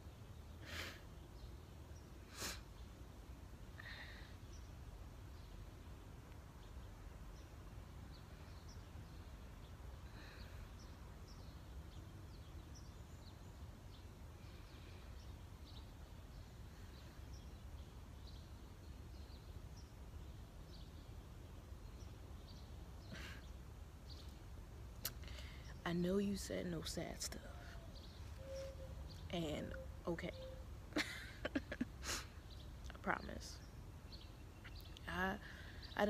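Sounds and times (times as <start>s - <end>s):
short bird chirps: 27.7s - 30.7s.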